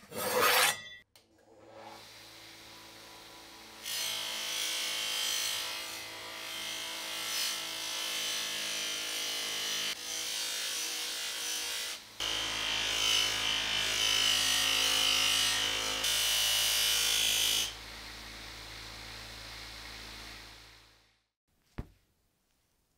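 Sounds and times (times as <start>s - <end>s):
metal scraping on grinding wheel: 0.0s - 1.0s.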